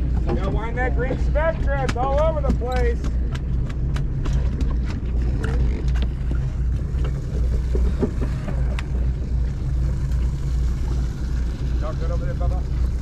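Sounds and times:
boat engine droning: 0.0s - 13.0s
sharp clicks and knocks: 0.2s - 6.2s.

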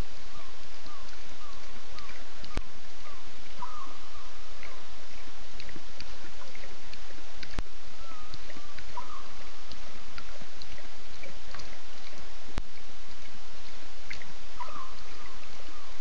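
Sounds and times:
wavering call: 0.0s - 5.7s, 7.7s - 12.5s, 13.2s - 16.0s
steady hiss: 0.0s - 16.0s.

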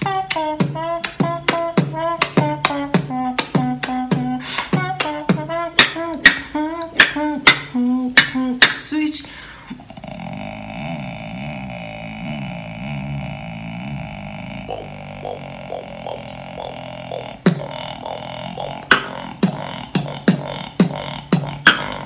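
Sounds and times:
beatboxing with hummed melody: 0.0s - 22.0s
nasal buzzing drone: 10.0s - 22.0s.

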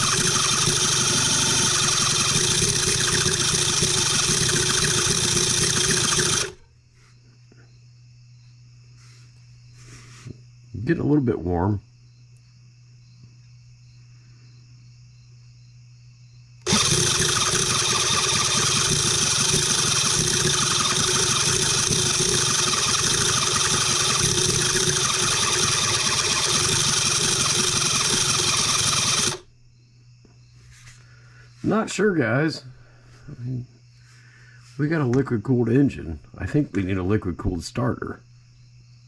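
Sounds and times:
starter motor cranking engine: 0.0s - 6.7s, 16.6s - 29.5s.

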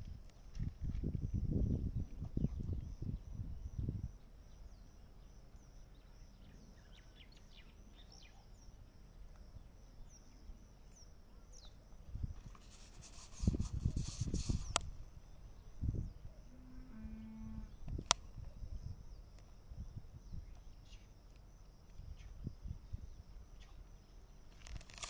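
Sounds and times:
low thumps with rustling hiss: 0.0s - 4.0s, 12.1s - 15.1s
faint bird chirps: 2.4s - 8.9s, 9.5s - 12.0s.

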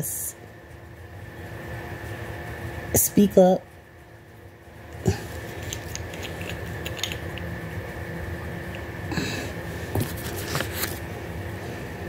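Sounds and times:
bottle clicking and rustling: 5.6s - 7.5s.

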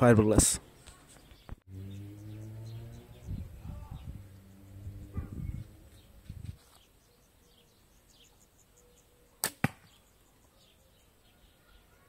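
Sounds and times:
bowstring snap: 9.4s - 9.9s
arrow hitting target: 9.4s - 10.0s.

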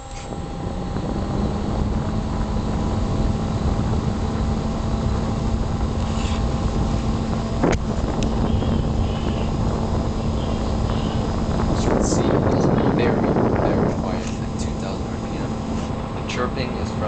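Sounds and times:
power supply chirps: 0.0s - 13.4s
case fan airflow rushing: 0.0s - 17.0s.

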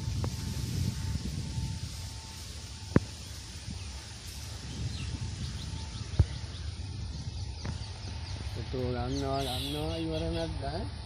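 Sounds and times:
steady low rumble: 0.0s - 9.4s
bird chirps: 2.9s - 10.8s.

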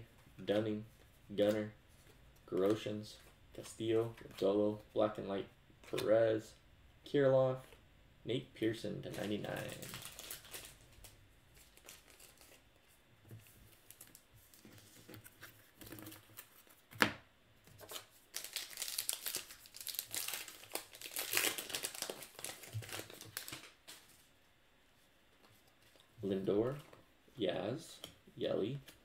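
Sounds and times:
wrapper crinkling and rustling: 9.1s - 12.6s, 17.8s - 24.2s.

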